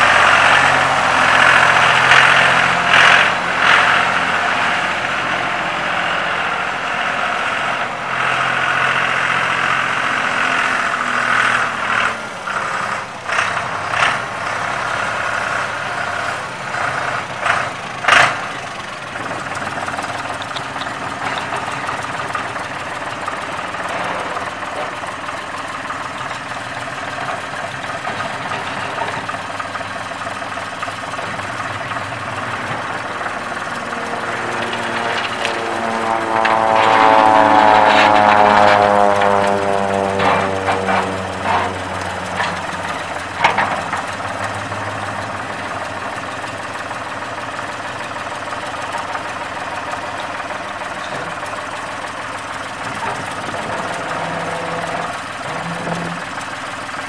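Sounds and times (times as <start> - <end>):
tractor diesel engine running: 0.0 - 57.0
sharp engine knocks: 37.9 - 46.2.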